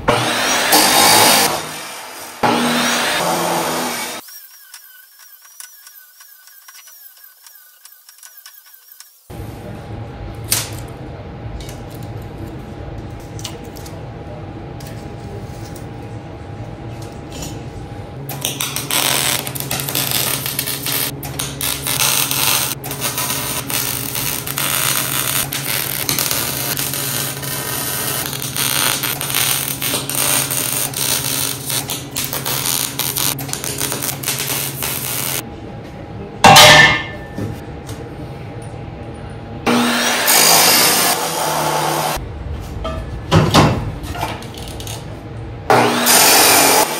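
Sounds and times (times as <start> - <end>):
welder arc crackling: 18.3 - 35.4.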